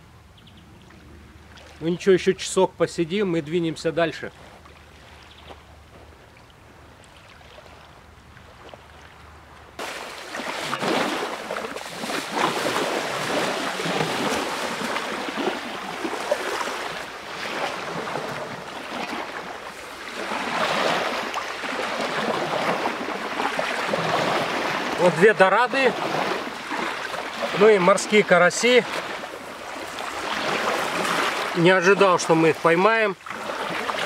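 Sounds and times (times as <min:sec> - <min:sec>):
waves washing onto shore: 0:09.7 - 0:34.0.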